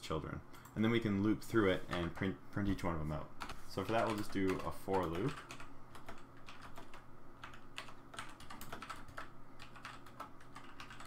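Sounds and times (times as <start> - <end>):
typing on computer keyboard: 3.4 - 11.0.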